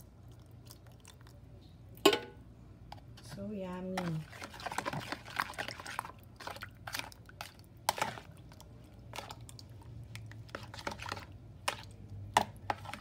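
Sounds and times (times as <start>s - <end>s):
spoon scraping plastic bowl: 4.0s - 7.1s, 10.5s - 13.0s.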